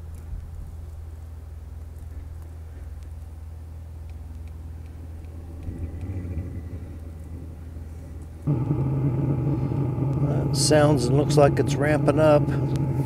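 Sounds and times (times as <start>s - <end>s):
heater exhaust rumbling: 0.0s - 13.0s.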